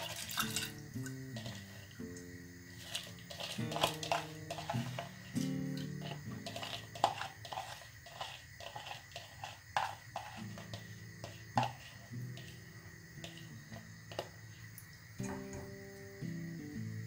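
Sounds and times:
lentils scraped from bowl: 0.0s - 0.8s, 1.4s - 2.0s, 2.7s - 13.5s
acoustic guitar music: 0.0s - 7.8s, 10.3s - 14.5s, 15.2s - 17.0s.

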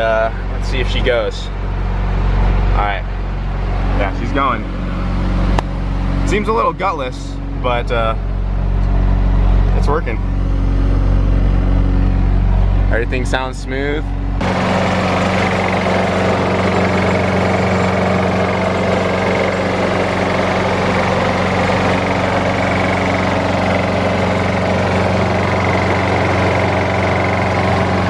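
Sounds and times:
lawn mower engine running: 14.2s - 28.0s.

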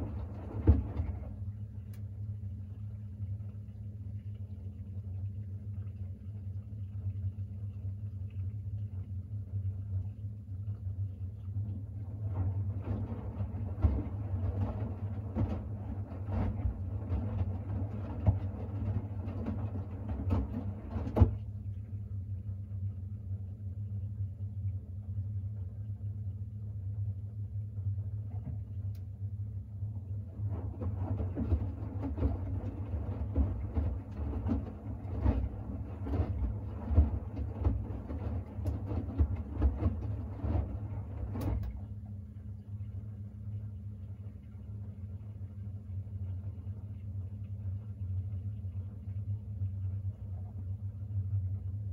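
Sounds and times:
wet laundry tumbling in drum: 0.0s - 9.6s, 10.8s - 22.0s, 29.8s - 42.4s
washing machine hum: 0.0s - 51.9s.

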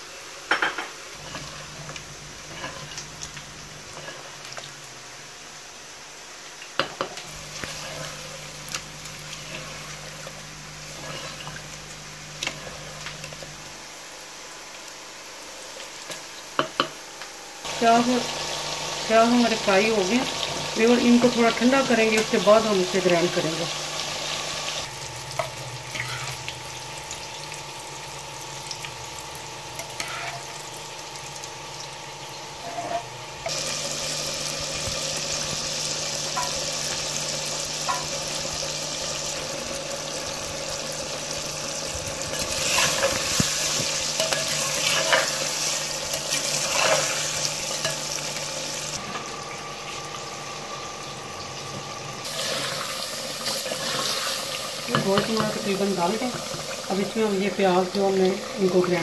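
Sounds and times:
chicken sizzling in hot oil: 0.0s - 59.0s
spatula stirring and scraping: 1.2s - 3.0s, 3.9s - 4.6s, 7.5s - 8.3s, 10.9s - 11.6s, 29.8s - 30.4s, 32.6s - 33.6s, 42.3s - 48.0s.

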